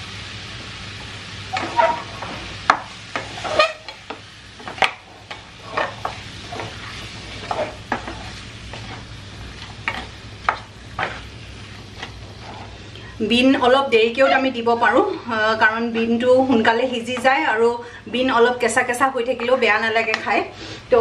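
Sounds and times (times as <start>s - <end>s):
spatula scraping wok: 1.4s - 12.9s, 13.6s - 15.2s.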